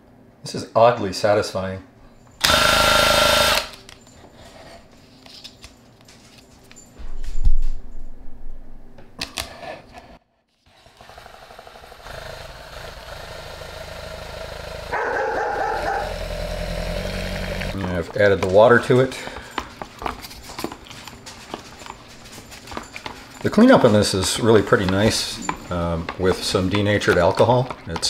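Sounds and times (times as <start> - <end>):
electric drill mixing: 2.4 - 3.8, 10.7 - 17.8.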